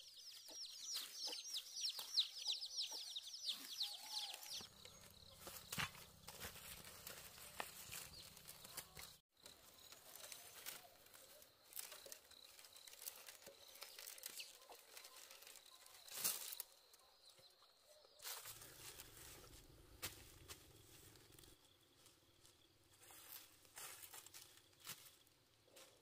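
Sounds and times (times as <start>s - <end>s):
bamboo strips rustling and clicking: 4.2s - 16.8s.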